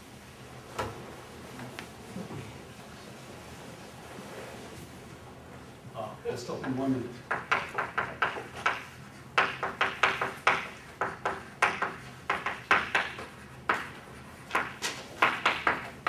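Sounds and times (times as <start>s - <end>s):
chalk writing on a blackboard: 6.6s - 16.0s.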